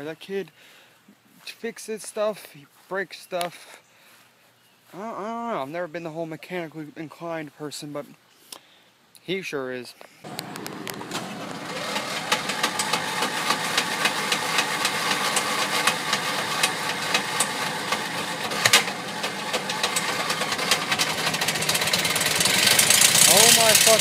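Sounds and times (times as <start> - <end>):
riding mower engine knocking: 10.3 - 24.0.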